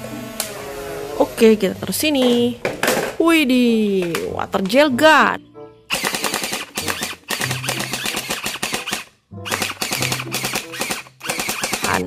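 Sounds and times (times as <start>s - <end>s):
toy blaster rapid firing: 5.9s - 12.0s.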